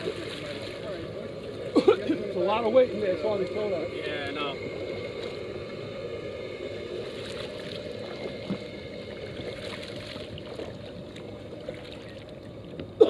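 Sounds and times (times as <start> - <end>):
steady low rumble: 0.0 - 13.0
paddle splashing in water: 9.4 - 12.4.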